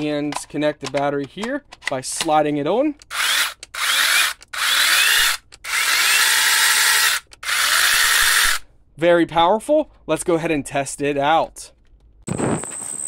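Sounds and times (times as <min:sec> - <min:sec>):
electric chainsaw running: 0:03.1 - 0:08.6.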